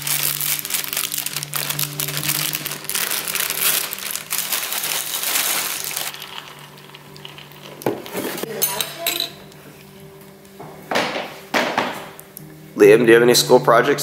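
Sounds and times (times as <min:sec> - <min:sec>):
cereal pattering into bowl: 0:00.0 - 0:08.4
plastic bag crinkling: 0:00.0 - 0:08.5.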